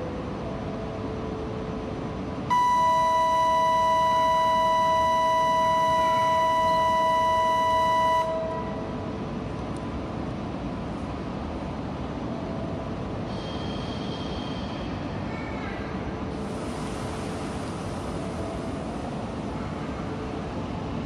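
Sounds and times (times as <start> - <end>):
two-note electronic signal tone: 2.5 - 8.9.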